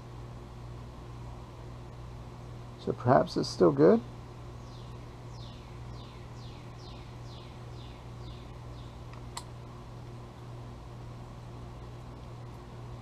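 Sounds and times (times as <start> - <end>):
sharp click: 9.1 - 9.5.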